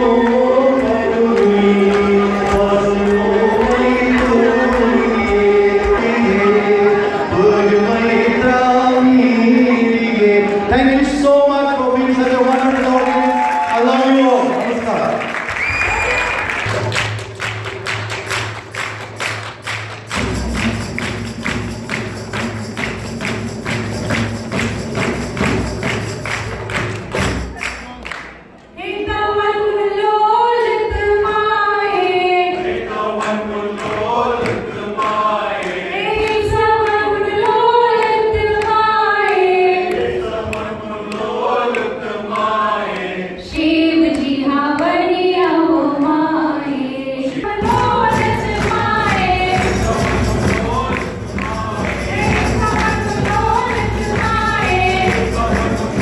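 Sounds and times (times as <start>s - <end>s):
women singing: 0.0s - 10.8s, 28.8s - 56.0s
hand clapping: 14.9s - 28.7s, 33.2s - 43.1s, 48.2s - 56.0s
frame drum beat: 16.6s - 27.6s, 47.5s - 56.0s.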